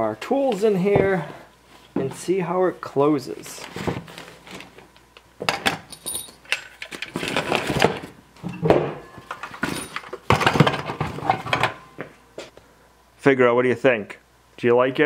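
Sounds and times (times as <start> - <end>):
plastic tools clattering together: 9.3 - 11.8.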